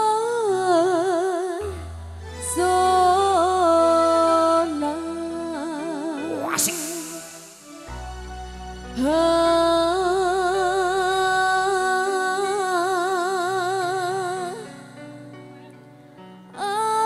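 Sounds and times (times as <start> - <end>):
woman singing held note: 6.2 - 7.9
live band accompaniment: 6.2 - 9.7.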